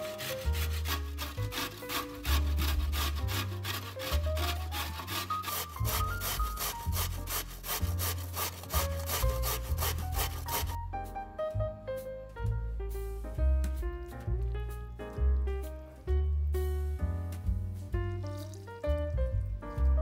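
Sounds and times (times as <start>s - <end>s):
vegetable rasping on grater: 0.0s - 10.8s.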